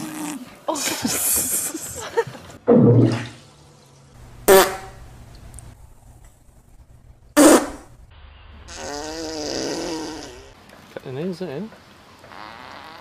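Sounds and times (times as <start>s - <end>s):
farts: 7.4s - 7.9s, 8.7s - 10.5s, 12.2s - 13.0s.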